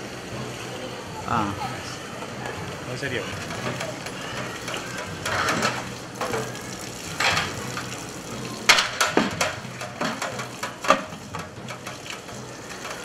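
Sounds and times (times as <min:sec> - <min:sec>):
steel pots clanking: 0:02.2 - 0:13.0
tap water splashing: 0:03.4 - 0:13.0.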